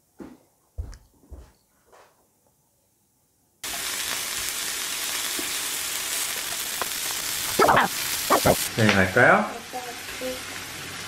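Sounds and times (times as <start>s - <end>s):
meat sizzling on grill: 3.6s - 11.0s.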